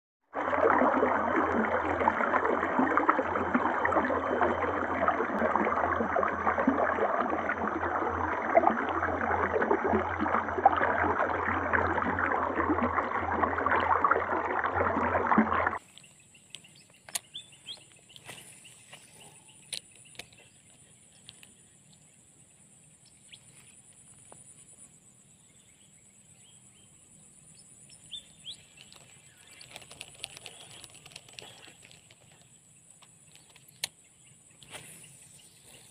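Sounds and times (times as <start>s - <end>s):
stream water splashing over ledge: 0.3s - 15.8s.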